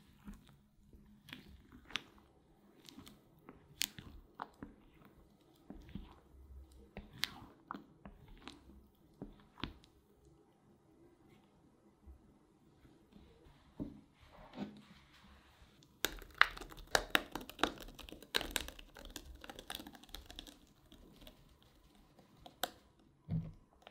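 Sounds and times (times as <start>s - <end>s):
wet squelches of mixture: 0.0s - 10.5s, 15.1s - 23.9s.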